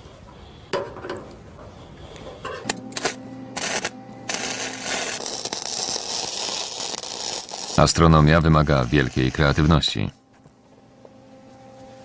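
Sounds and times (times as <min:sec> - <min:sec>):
welder hum: 0:00.0 - 0:12.0
welding arc hiss and crackle: 0:02.1 - 0:10.1.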